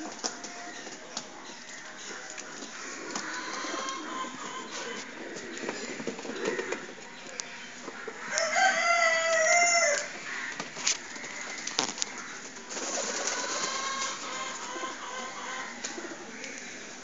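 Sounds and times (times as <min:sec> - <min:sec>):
rooster crowing: 0:08.2 - 0:10.1.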